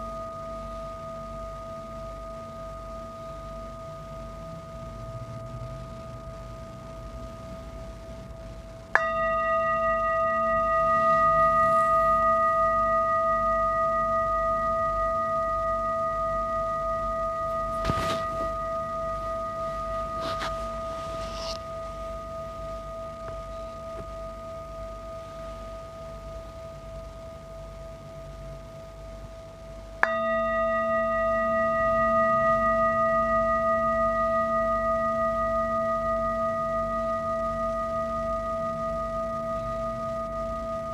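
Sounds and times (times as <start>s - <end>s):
singing bowl ringing: 0.0s - 40.9s
mallet striking singing bowl: 9.0s - 22.2s, 30.0s - 38.2s.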